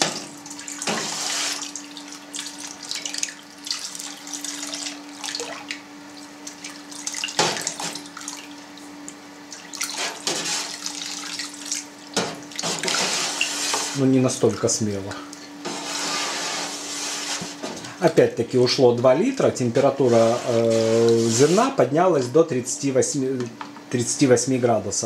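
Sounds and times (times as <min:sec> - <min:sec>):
water pouring and splashing: 0:00.4 - 0:05.8, 0:09.5 - 0:14.0.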